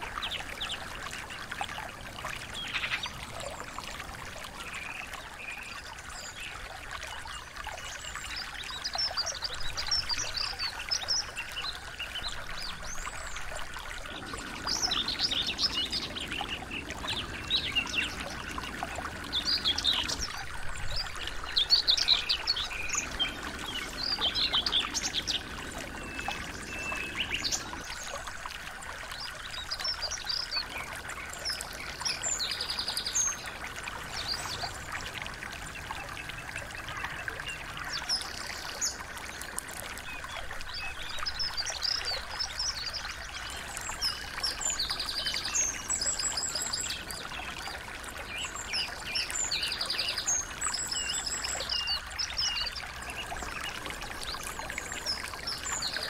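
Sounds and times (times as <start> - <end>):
songbirds chirping and trilling: 0.0 - 28.3
small stream rushing: 0.0 - 56.0.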